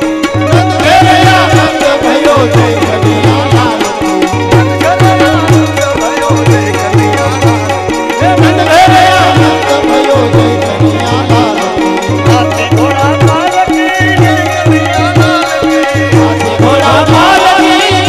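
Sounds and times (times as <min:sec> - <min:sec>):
devotional folk music: 0:00.0 - 0:18.0
steady drum beat: 0:00.0 - 0:18.0.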